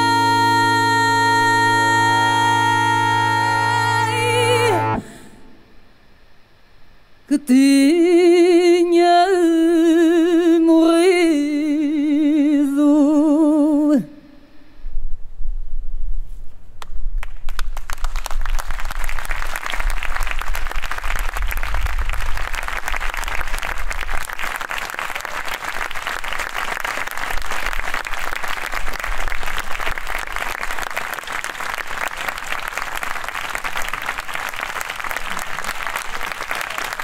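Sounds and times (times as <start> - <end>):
audience applauding: 17.2 - 37.0.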